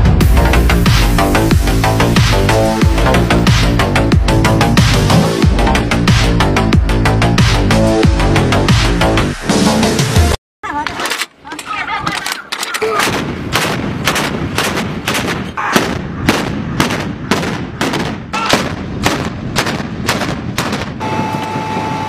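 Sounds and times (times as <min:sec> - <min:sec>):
anti-aircraft guns firing: 0:12.1 - 0:21.0.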